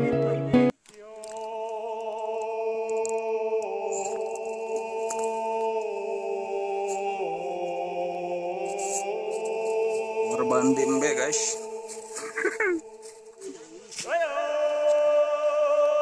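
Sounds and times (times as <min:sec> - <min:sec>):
low drone: 0:01.5 - 0:14.0
sustained chord: 0:03.7 - 0:13.8.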